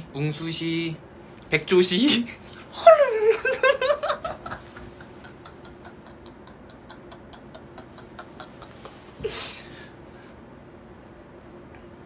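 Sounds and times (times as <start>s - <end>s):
man laughing: 2.7s - 9.7s.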